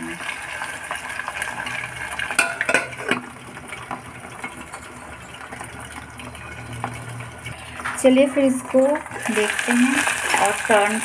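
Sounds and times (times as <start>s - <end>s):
chicken frying in oil: 0.0s - 11.0s
glass lid clinking on pan: 2.4s - 3.2s.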